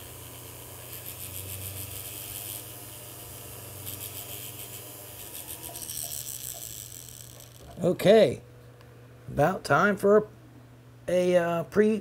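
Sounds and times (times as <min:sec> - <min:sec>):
abrasive wheel scratching metal: 0:00.0 - 0:07.8.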